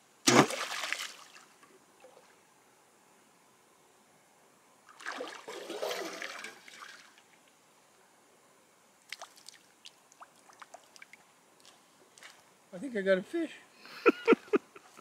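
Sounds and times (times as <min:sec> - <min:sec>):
water streaming and splashing: 0:00.3 - 0:02.3, 0:04.9 - 0:07.4.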